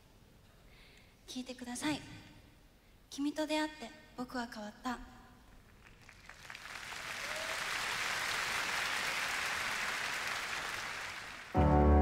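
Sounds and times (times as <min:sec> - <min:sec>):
audience applauding: 0:05.7 - 0:11.8.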